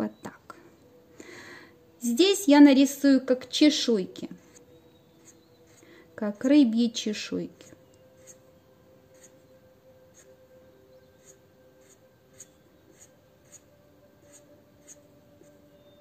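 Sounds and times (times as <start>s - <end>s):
marker scratching on paper: 4.4s - 4.6s, 5.2s - 6.5s, 7.6s - 8.4s, 9.1s - 9.4s, 10.1s - 10.3s, 11.2s - 15.6s.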